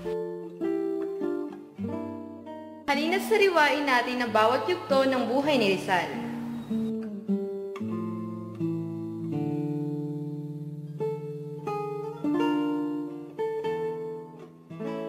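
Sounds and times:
acoustic guitar melody: 0.0s - 15.0s.

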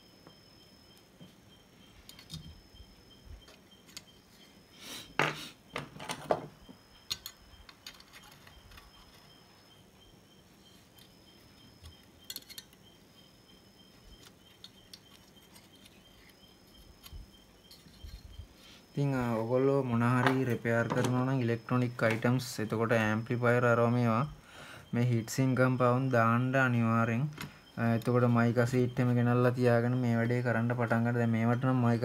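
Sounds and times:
faint room noise: 0.0s - 32.0s
tools clicking and clinking: 7.0s - 9.3s, 11.8s - 12.8s.

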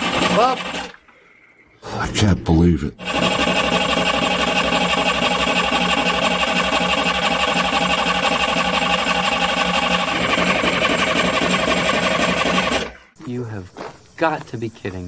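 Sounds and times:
diesel engine cranking on starter: 0.0s - 1.1s, 3.0s - 13.2s.

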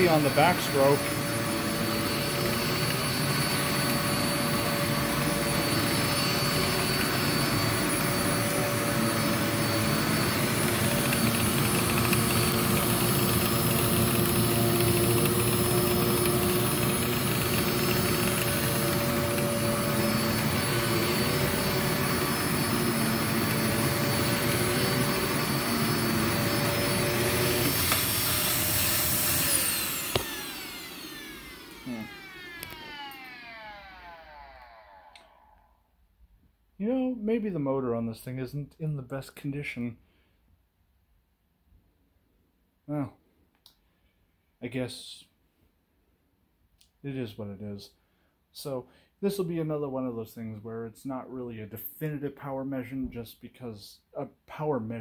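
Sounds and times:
motor winding down whine: 0.0s - 35.8s
vacuum cleaner running: 0.0s - 35.8s.

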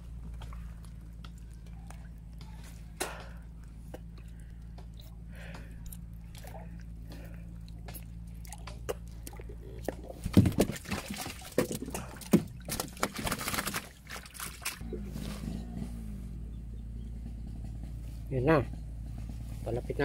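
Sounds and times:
water sloshing and splashing: 0.0s - 15.8s
steady low hum: 0.0s - 20.0s.

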